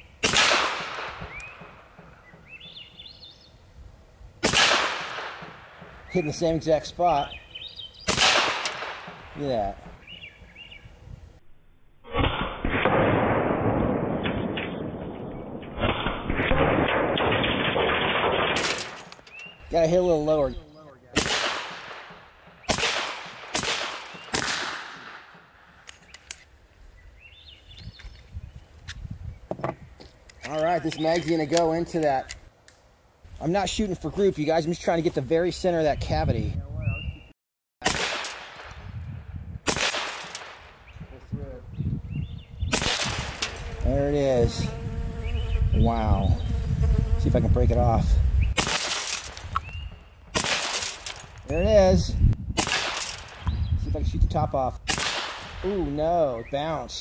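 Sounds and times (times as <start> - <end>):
air pistol shots: 0.2 - 2.1, 4.4 - 6.0, 8.1 - 9.4, 12.1 - 15.0, 15.8 - 19.3, 21.2 - 25.6, 37.8 - 38.8, 39.6 - 40.8, 42.7 - 43.6, 48.6 - 51.4, 52.6 - 53.6, 54.8 - 55.6.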